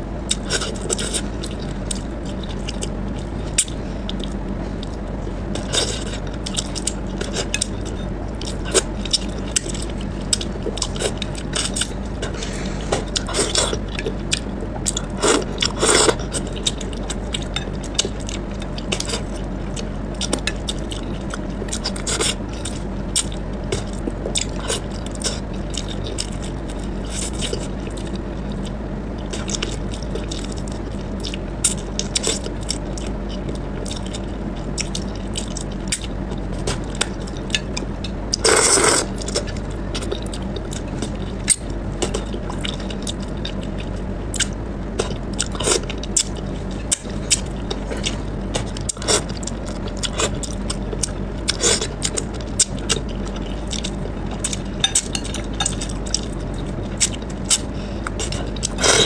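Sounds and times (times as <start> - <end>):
steady low hum: 0.0 - 59.0
chewing and lip smacking: 13.1 - 59.0.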